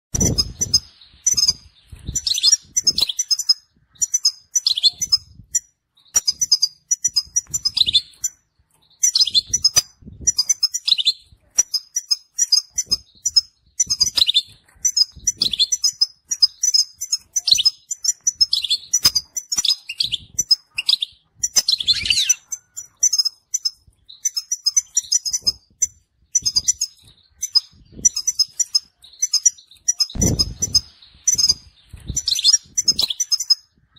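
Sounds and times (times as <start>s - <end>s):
goldfinch twittering song: 0.1s - 33.9s
low thumps: 30.2s - 32.2s.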